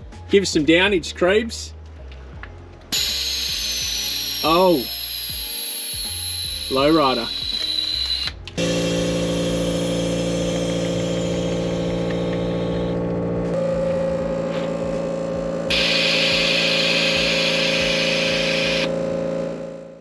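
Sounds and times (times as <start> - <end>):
air hissing: 2.9 - 8.0, 15.7 - 18.9
air compressor droning hum: 2.9 - 20.0.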